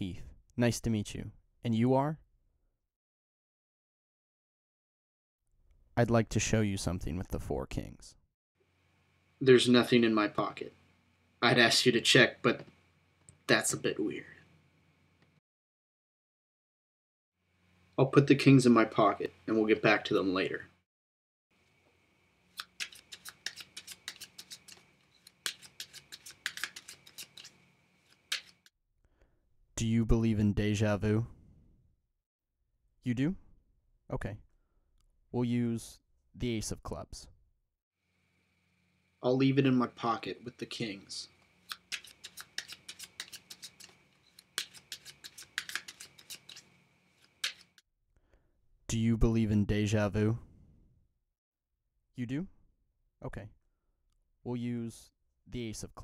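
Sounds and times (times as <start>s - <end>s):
playing cards clicking and snapping: 22.6s - 28.7s, 41.7s - 47.8s.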